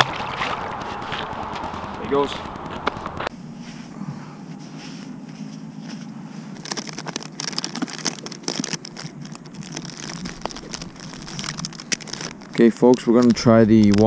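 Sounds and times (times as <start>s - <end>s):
plastic boxes and packaging rustling: 4.8s - 14.0s.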